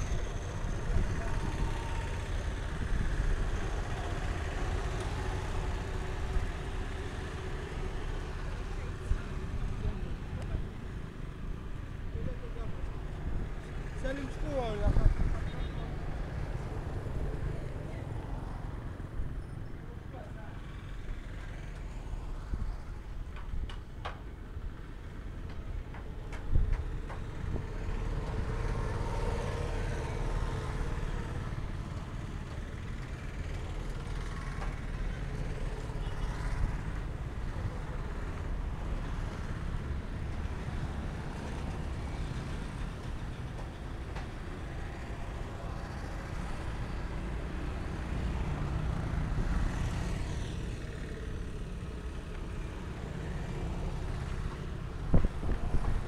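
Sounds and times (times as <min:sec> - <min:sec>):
low traffic rumble: 0:00.0 - 0:56.0
cars passing: 0:24.9 - 0:56.0.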